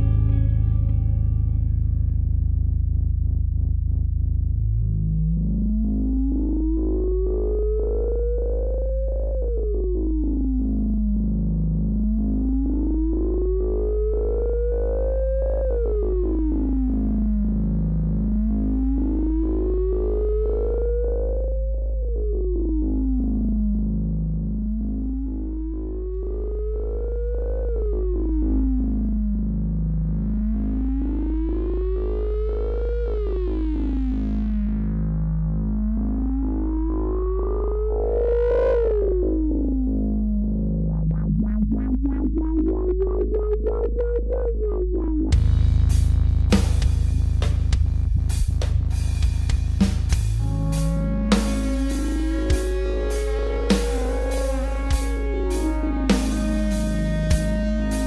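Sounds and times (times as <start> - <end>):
deep bass drone: 0.0 - 58.0
electronic synthesizer music: 0.0 - 58.0
gliding synth tone: 50.4 - 58.0.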